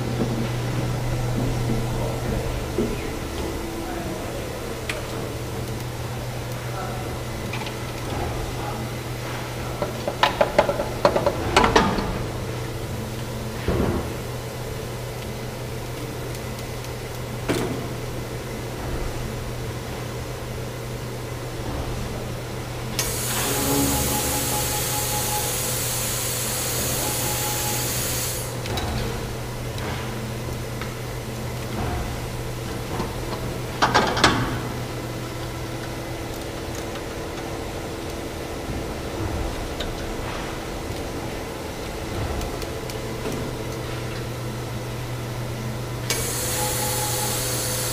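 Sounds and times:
machine hum: 0.0 - 47.9
sharp clicks and knocks: 9.8 - 12.1
loud even hiss: 23.0 - 28.6.

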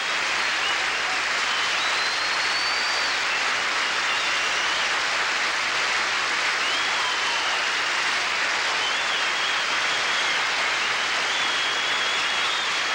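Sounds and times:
studio audience applauding: 0.0 - 12.9
high whistle: 1.5 - 5.0, 6.6 - 12.9.

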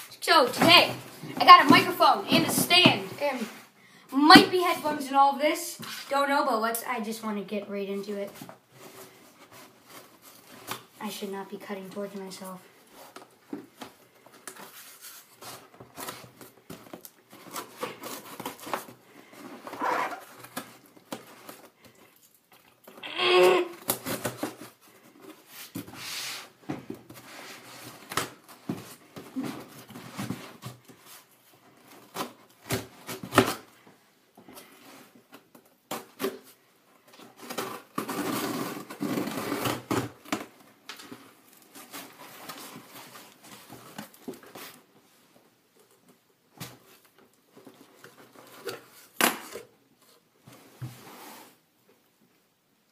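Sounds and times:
tape ripping: 37.4 - 40.4
cardboard scrapes and rustles: 50.0 - 51.6.

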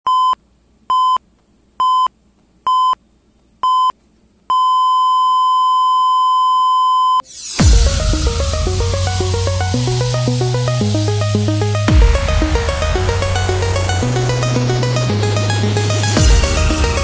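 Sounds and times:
rising swell: 7.2 - 17.0
electronic dance music with heavy bass: 7.3 - 17.0.

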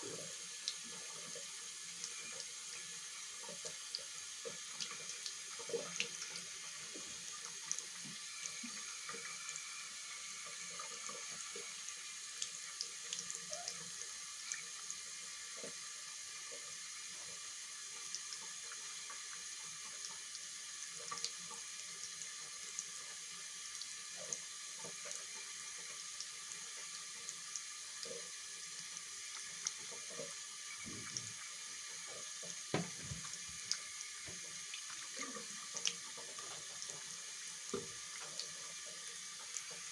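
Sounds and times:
tap water running into sink: 0.0 - 39.9
water splashes and drips: 0.0 - 39.9.

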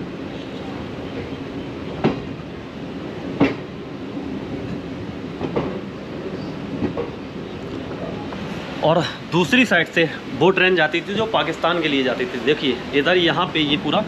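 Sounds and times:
train rumble: 0.0 - 14.0
wheels clacking over rail joints: 3.2 - 3.8, 5.4 - 7.2.

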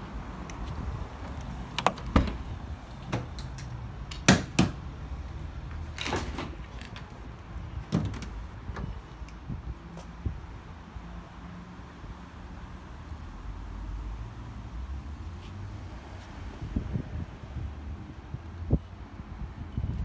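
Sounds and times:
van door latches clicking: 1.3 - 4.8.

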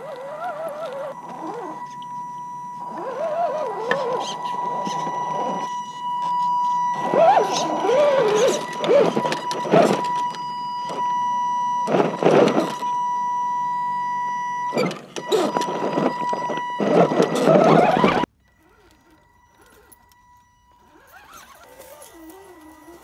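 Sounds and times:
electric motor whining: 0.0 - 23.0.

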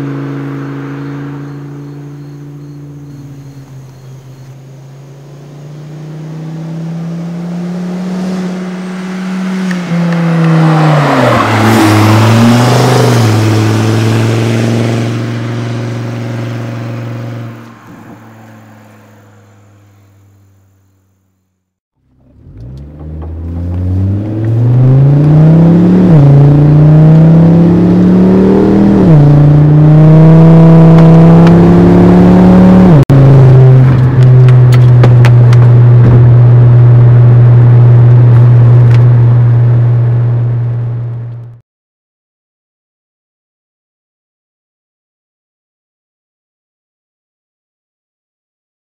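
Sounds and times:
car accelerating through gear changes: 0.0 - 18.2, 22.1 - 41.6.

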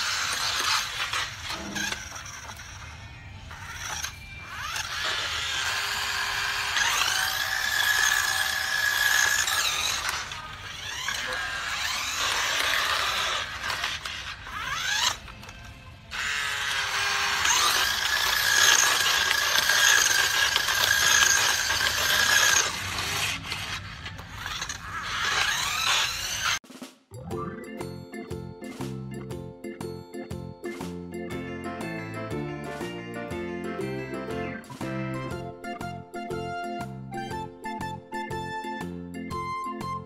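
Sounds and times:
toy motorbike high-pitched squealing: 0.0 - 26.6.

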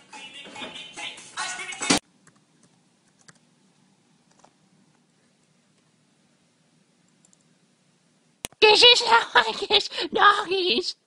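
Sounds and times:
laptop keyboard typing: 2.2 - 3.4, 4.3 - 4.6.

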